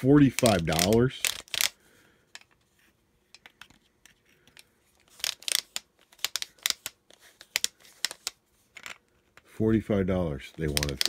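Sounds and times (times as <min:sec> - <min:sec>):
plastic clicks and scrapes: 0:03.3 - 0:09.5, 0:10.6 - 0:11.0.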